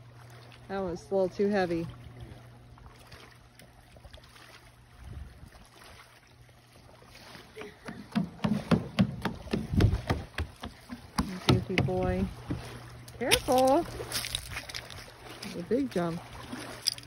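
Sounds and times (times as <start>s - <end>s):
gusty bumps: 8.2s - 12.8s
small waves lapping on rocks: 8.5s - 17.0s.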